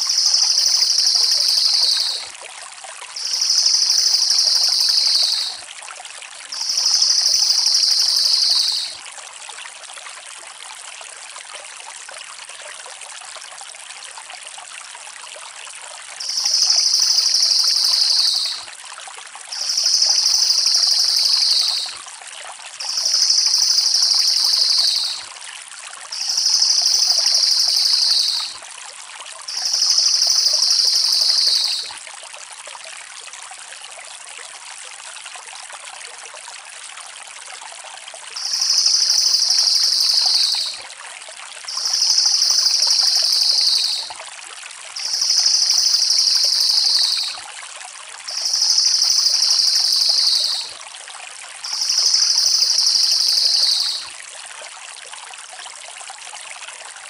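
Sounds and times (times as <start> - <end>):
constant hiss: 0.0 - 2.3, 3.1 - 5.6, 6.5 - 9.0, 16.2 - 18.7, 19.4 - 22.0, 22.8 - 25.4, 26.1 - 28.7, 29.4 - 32.0, 38.3 - 40.9, 41.7 - 44.2, 44.9 - 47.5, 48.2 - 50.6, 51.6 - 54.1.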